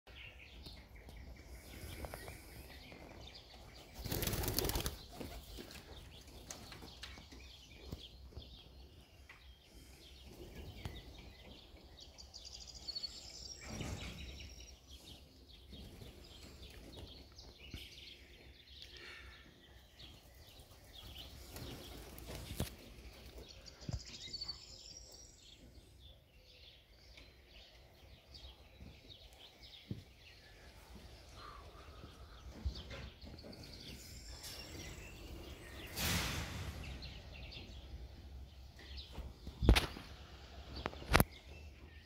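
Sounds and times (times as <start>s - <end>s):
pigeon wings flapping: 4.0s - 5.6s.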